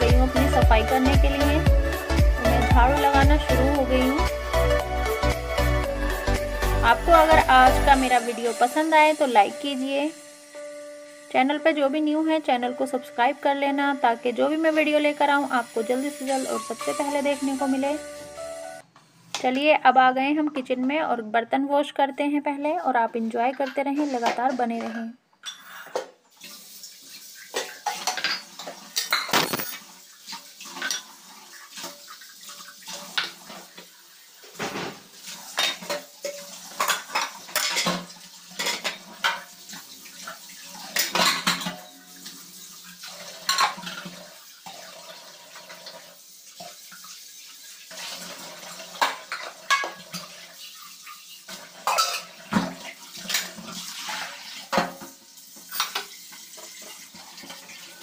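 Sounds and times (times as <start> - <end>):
dishes clinking and clattering: 23.5 - 26.2, 27.4 - 45.9, 48.0 - 57.9.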